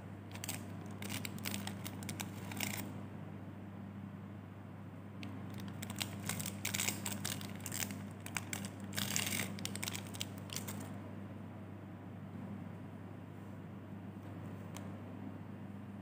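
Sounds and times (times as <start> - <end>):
steady low hum: 0.0 - 16.0
plastic wrapper crinkling: 0.3 - 2.8, 5.5 - 10.9.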